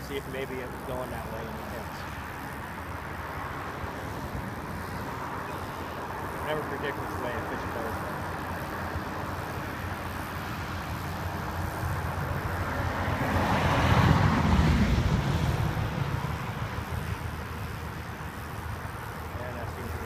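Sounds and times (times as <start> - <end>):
car passing by: 10.6 - 18.0.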